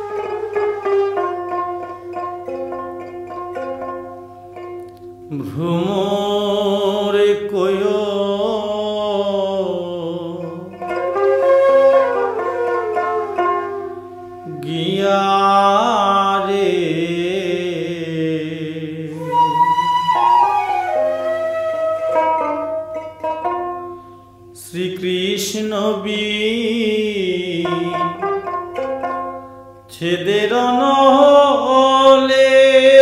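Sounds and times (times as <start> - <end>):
plucked string notes: 0.0 - 33.0
folk singing with vibrato: 5.3 - 10.8, 14.4 - 20.6.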